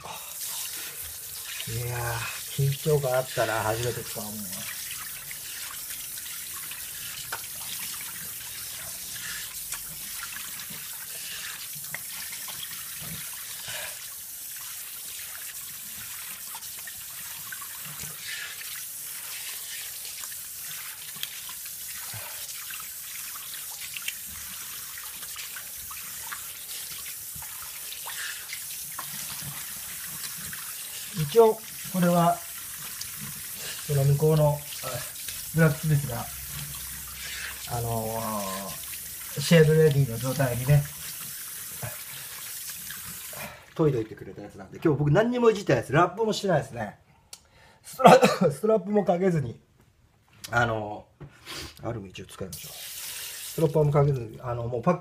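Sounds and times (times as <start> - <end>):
tap water running into sink: 0.4 - 43.9, 52.5 - 54.3.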